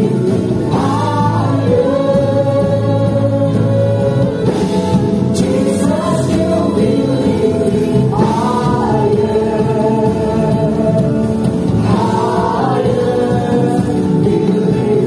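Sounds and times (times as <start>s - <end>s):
band with keyboard and guitar: 0.0s - 15.0s
singers holding long notes: 0.0s - 15.0s.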